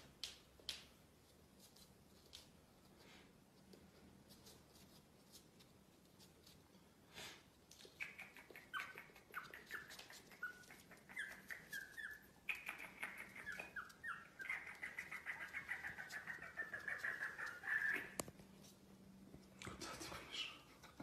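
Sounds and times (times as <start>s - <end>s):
soft rustle: 0.1s - 20.8s
puppy whimpering: 8.3s - 18.2s.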